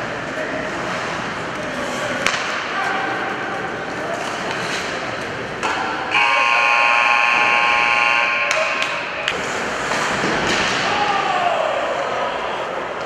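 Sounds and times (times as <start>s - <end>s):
ice rink din: 0.4s - 13.0s
scoreboard horn blast: 6.1s - 8.5s.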